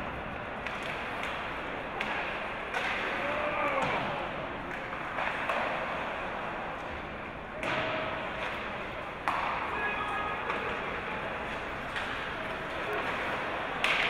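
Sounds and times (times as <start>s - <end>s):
steady background hum: 0.0s - 14.0s
hockey sticks knocking puck: 0.3s - 6.1s, 7.6s - 14.0s
puck hitting boards: 0.6s - 5.9s, 7.6s - 10.8s, 13.8s - 14.0s
distant shout: 3.1s - 4.4s, 9.6s - 10.7s.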